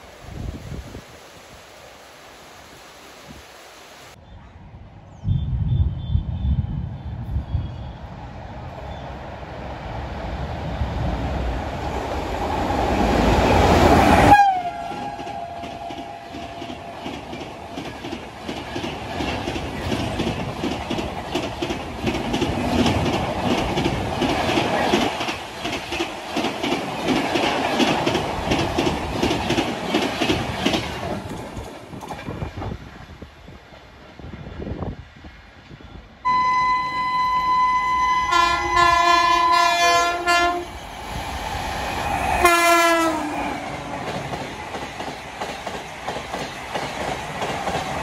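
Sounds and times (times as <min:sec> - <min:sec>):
train horn: 0:14.1 - 0:17.0, 0:36.2 - 0:40.7, 0:42.4 - 0:43.8
train wheels clattering over rail joints: 0:15.0 - 0:32.8, 0:43.8 - 0:48.0.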